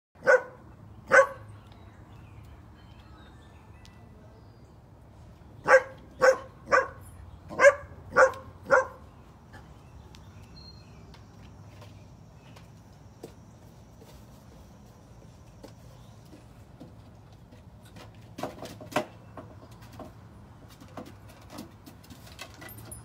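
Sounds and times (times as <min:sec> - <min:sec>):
dog barking: 0:00.2 - 0:01.5, 0:05.6 - 0:09.0.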